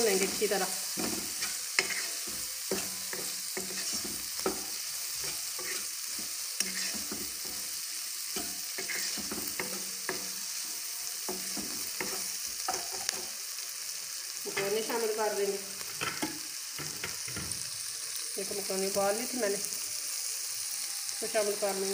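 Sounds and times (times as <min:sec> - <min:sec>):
spatula scraping a pan: 0:00.0 - 0:13.3
food sizzling in oil in a wok: 0:00.0 - 0:21.9.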